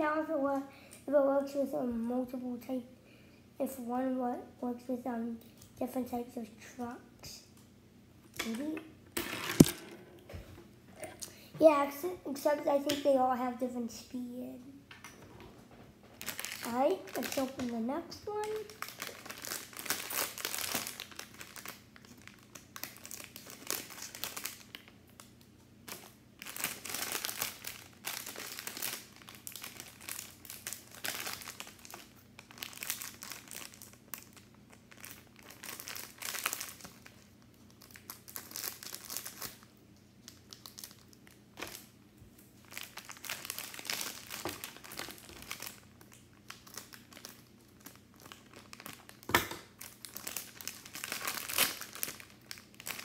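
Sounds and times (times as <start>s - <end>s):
plastic packet crinkling: 16.1s - 53.0s.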